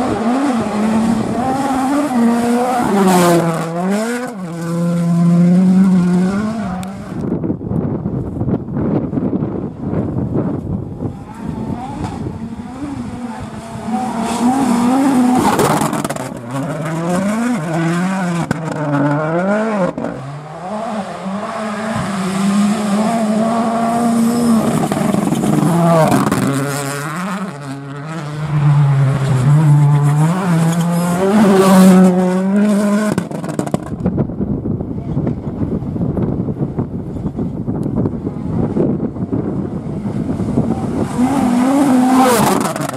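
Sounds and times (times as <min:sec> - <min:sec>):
rally car engine revving: 0:00.0 - 0:42.9.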